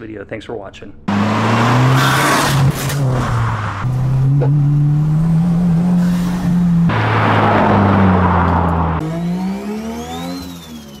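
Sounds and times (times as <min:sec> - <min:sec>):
car engine droning and revving: 0:01.1 - 0:11.0
rushing sound: 0:06.0 - 0:09.5
high whistle: 0:10.0 - 0:11.0.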